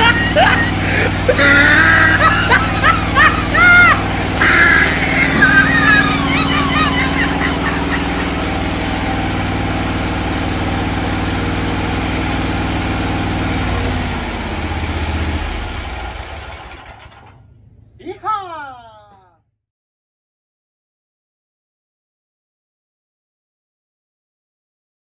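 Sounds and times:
riding mower engine running: 0.0s - 18.0s.

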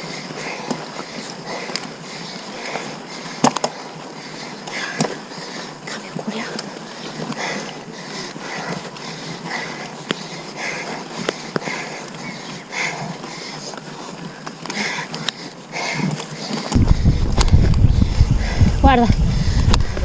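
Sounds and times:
bike ride noise: 0.0s - 20.0s
hard rhythmic breathing: 0.0s - 20.0s.

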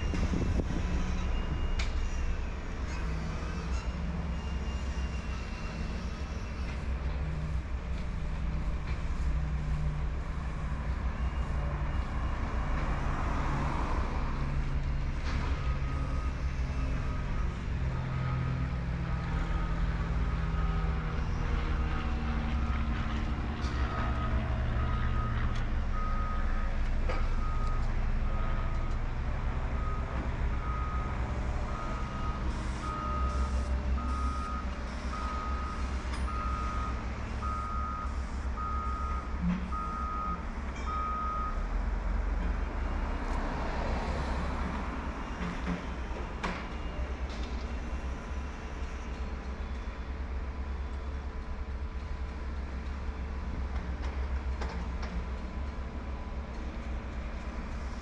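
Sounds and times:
reversing alarm beeping: 0.0s - 2.5s, 23.9s - 29.0s, 29.8s - 41.7s
heavy vehicle engine rumble: 0.0s - 58.0s.

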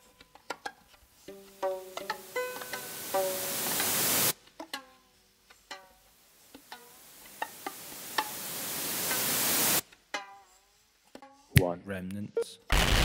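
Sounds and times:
rising electronic hiss: 2.1s - 4.4s, 7.0s - 9.8s, 12.7s - 13.0s.

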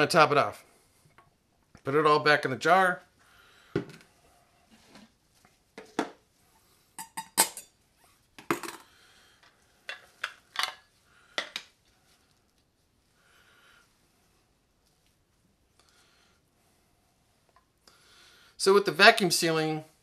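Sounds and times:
kitchenware clinking and knocking: 7.0s - 7.7s.

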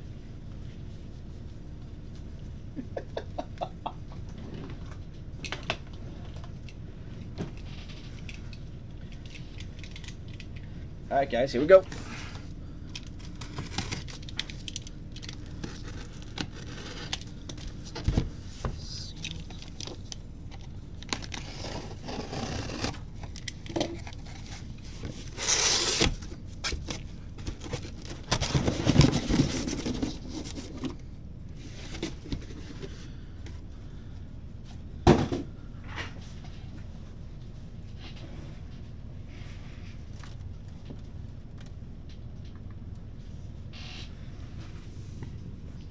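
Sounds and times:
packing tape tearing: 12.9s - 17.3s, 19.1s - 24.7s, 25.3s - 30.6s
cardboard flaps scraping and rustling: 21.2s - 31.0s.

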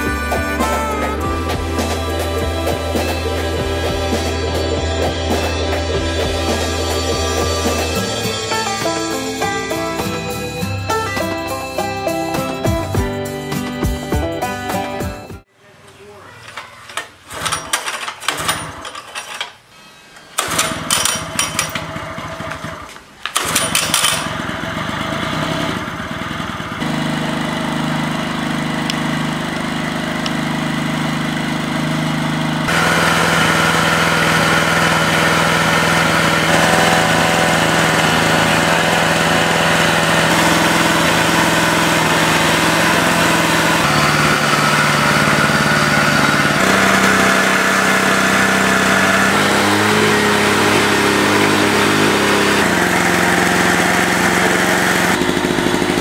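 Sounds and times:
generator engine running: 0.0s - 15.5s, 20.4s - 56.0s
recoil starter yanks: 16.3s - 56.0s.

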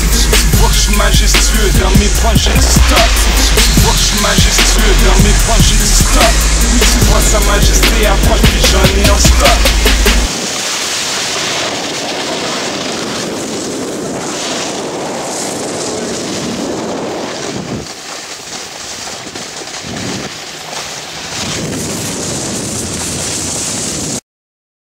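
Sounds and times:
snowboard sliding over snow: 0.0s - 24.2s
wind across microphone: 11.5s - 18.2s, 19.0s - 24.2s.

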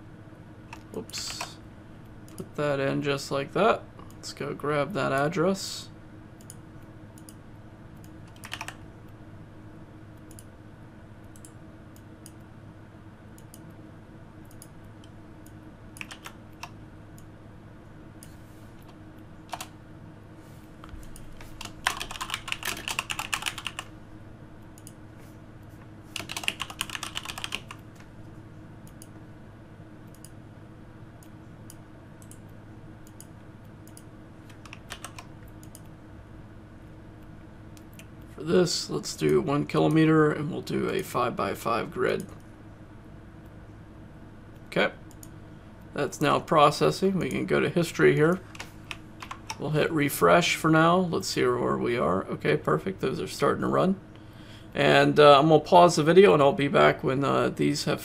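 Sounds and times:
faint steady hum: 0.0s - 58.0s
keyboard typing: 8.0s - 8.8s, 14.4s - 17.3s, 19.5s - 19.7s, 21.0s - 23.9s, 26.1s - 28.1s, 33.0s - 35.9s, 48.3s - 49.6s.

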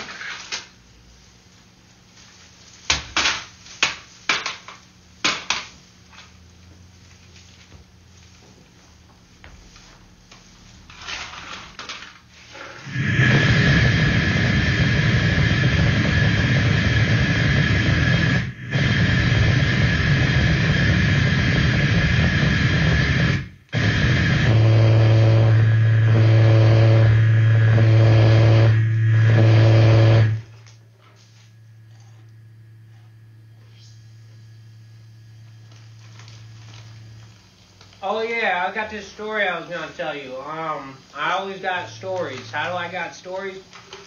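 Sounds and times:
loud static roar with whine: 0.0s - 44.0s
low buzzing drone: 9.4s - 38.8s
pulsing high tones: 12.6s - 37.3s.

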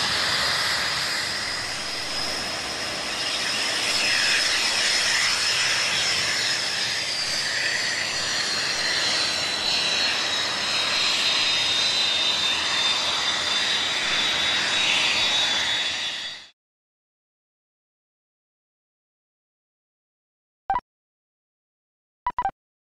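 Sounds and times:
jet engine roaring: 0.0s - 16.5s
jet engine high whine: 0.0s - 16.6s.

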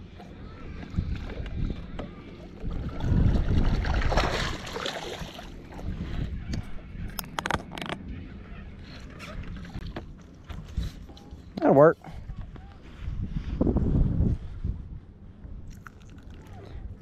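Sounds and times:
sharp clicks and knocks: 7.1s - 8.1s.

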